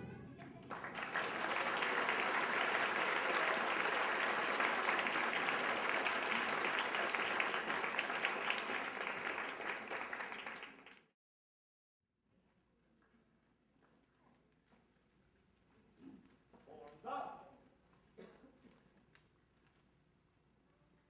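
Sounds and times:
audience applauding: 0:00.4 - 0:11.1.

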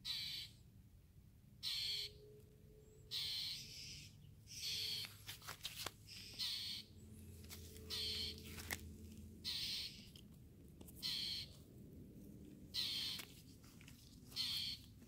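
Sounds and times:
harsh raspy bird mobbing calls: 0:06.1 - 0:06.9, 0:07.8 - 0:08.5, 0:09.4 - 0:10.1, 0:11.0 - 0:11.5, 0:12.8 - 0:13.3, 0:14.4 - 0:14.9.

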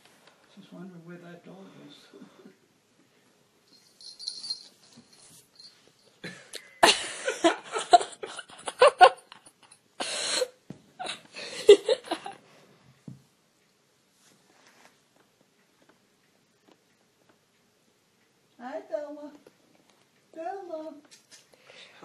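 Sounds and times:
person laughing: 0:06.2 - 0:09.5, 0:11.0 - 0:12.4.

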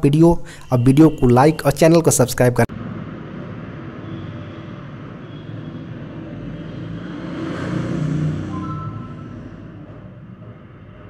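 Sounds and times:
passing vehicle rumble: 0:02.6 - 0:11.0.

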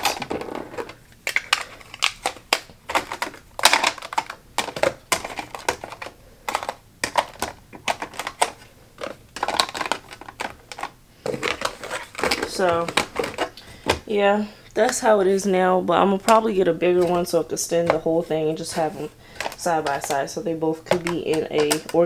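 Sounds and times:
plastic and cardboard clacking: 0:00.0 - 0:14.0, 0:20.8 - 0:22.0.

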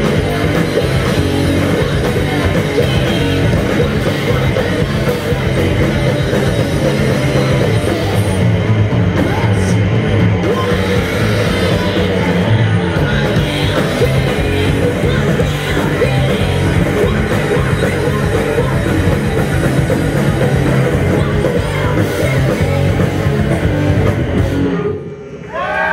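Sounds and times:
live rock band playing: 0:00.0 - 0:25.3
woman singing into a microphone: 0:10.4 - 0:20.0, 0:20.9 - 0:23.0.

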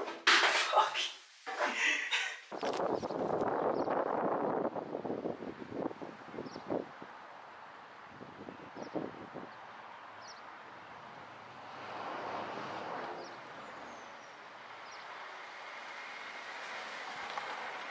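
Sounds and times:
road traffic noise: 0:04.8 - 0:17.9
vehicle passing: 0:09.7 - 0:17.9.

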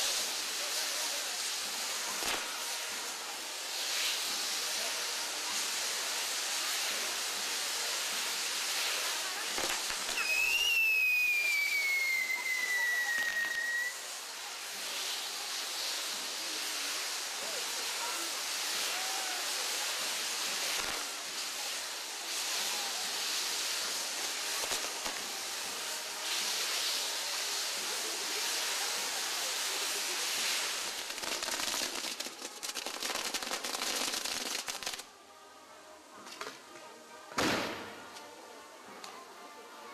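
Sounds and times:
fireworks crackling: 0:00.0 - 0:35.2, 0:36.2 - 0:39.2
fireworks fizzing hiss: 0:00.0 - 0:39.9
falling whistle: 0:10.2 - 0:14.1.

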